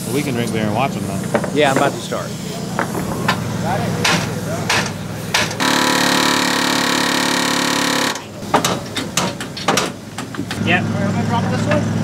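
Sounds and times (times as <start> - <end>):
pneumatic air hammer: 2.8 - 10.6.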